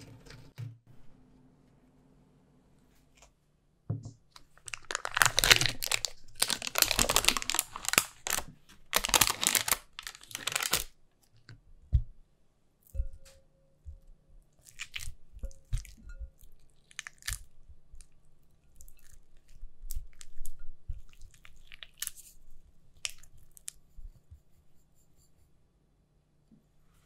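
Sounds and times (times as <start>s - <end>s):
spatula squishing cream cheese: 14.2s - 25.1s.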